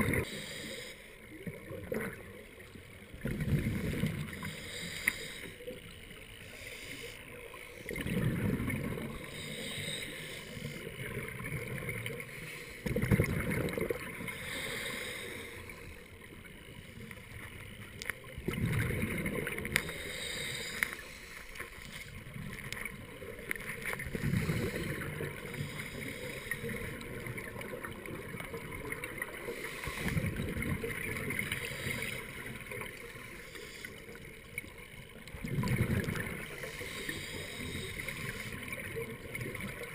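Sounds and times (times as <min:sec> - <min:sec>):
faint watery hiss: 0:00.0 - 0:18.2, 0:19.1 - 0:34.9, 0:35.6 - 0:39.9
exhaled bubbles rumbling: 0:01.5 - 0:04.4, 0:07.8 - 0:09.4, 0:10.9 - 0:14.4, 0:18.2 - 0:19.8, 0:30.2 - 0:33.0, 0:35.2 - 0:36.7.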